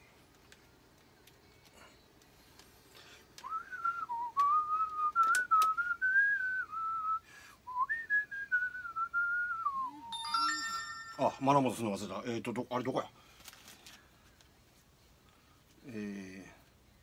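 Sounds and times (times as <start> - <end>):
man whistling a tune: 3.4 - 10.4.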